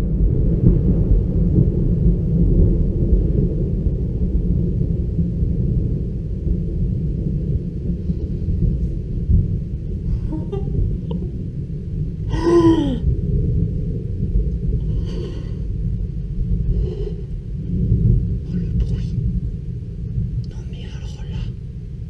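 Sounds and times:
thunder rumbling: 0.0s - 22.0s
person gasping: 10.1s - 11.2s, 12.3s - 13.0s, 14.8s - 15.7s, 16.7s - 17.3s.

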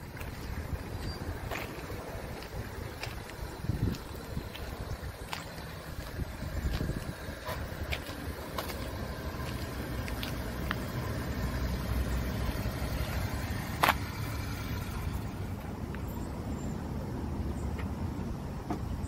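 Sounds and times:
truck engine rumbling: 0.0s - 19.0s.

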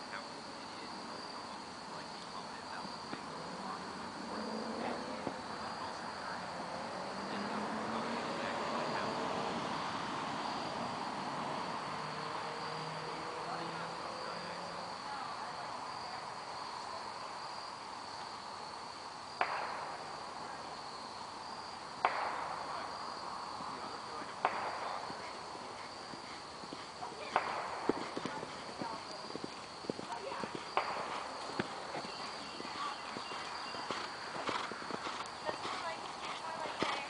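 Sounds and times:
insect chorus trilling: 0.0s - 37.0s.

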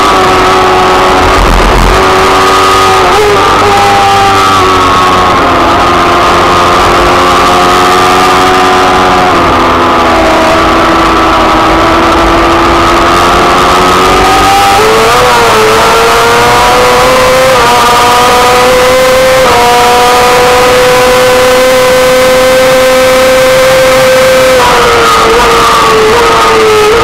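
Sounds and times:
racing engine at high revs: 0.0s - 27.0s.

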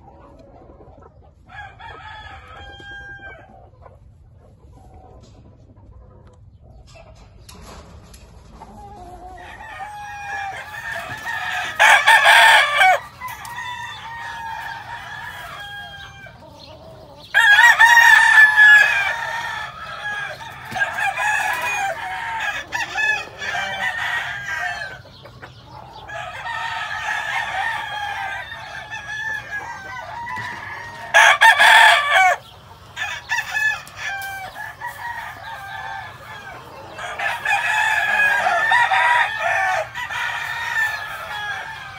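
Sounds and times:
chorus of roosters crowing: 0.0s - 3.9s, 8.5s - 41.9s
chickens clucking: 0.0s - 41.9s
loud rooster crows: 1.5s - 3.5s, 9.2s - 16.5s, 17.3s - 25.1s, 26.0s - 41.9s.

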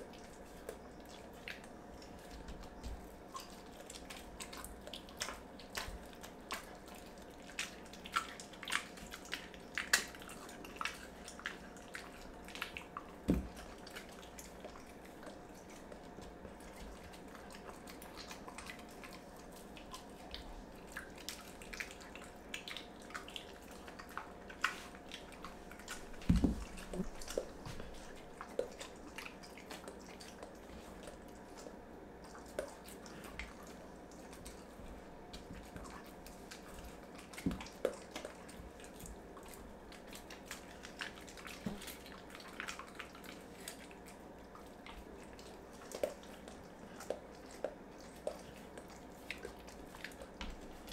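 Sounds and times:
dog chewing wet meat: 0.0s - 50.9s.

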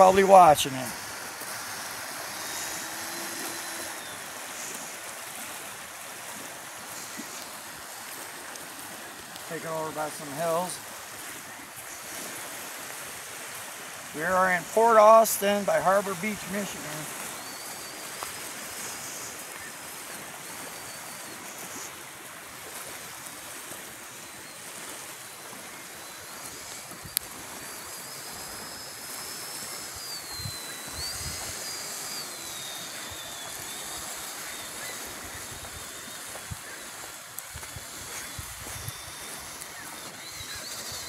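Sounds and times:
electric motor whining: 0.0s - 41.0s
wind and surf: 0.0s - 41.0s.

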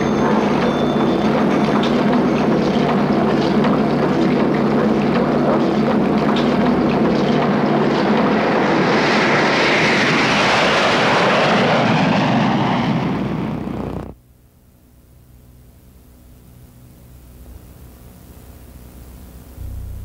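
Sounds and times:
loud steady engine noise: 0.0s - 11.0s
faint hiss and hum: 14.1s - 20.0s.

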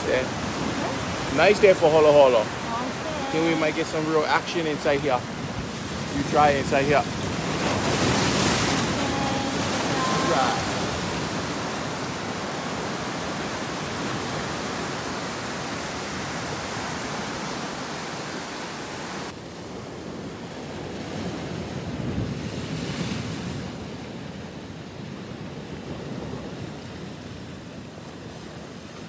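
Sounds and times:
surf breaking over rocks: 0.0s - 19.3s.

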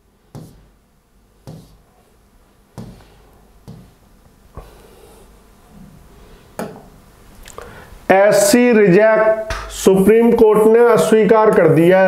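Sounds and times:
handling knocks: 2.8s - 4.0s.

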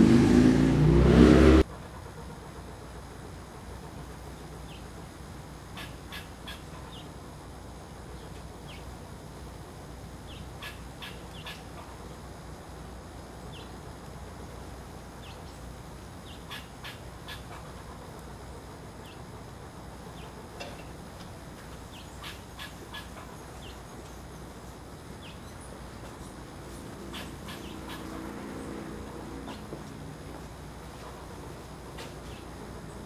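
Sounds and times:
songbird call notes: 5.7s - 7.2s, 10.2s - 12.0s, 13.5s - 13.8s, 15.2s - 18.2s, 21.7s - 29.8s, 31.9s - 33.0s.

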